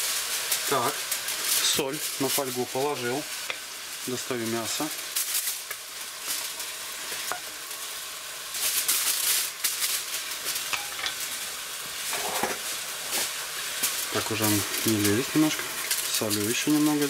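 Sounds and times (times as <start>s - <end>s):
meat sizzling in a pan: 0.0s - 17.0s
wooden spatula scraping a pan: 12.1s - 13.4s.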